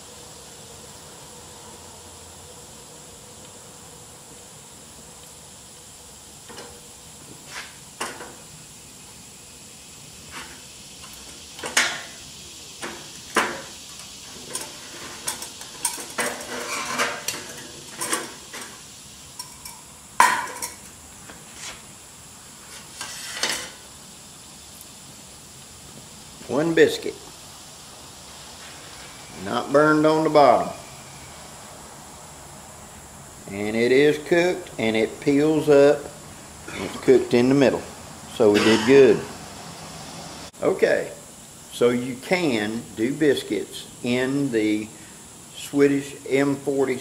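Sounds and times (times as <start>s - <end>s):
metal pots clanking: 14.4s - 18.8s, 19.4s - 20.8s, 38.5s - 39.2s.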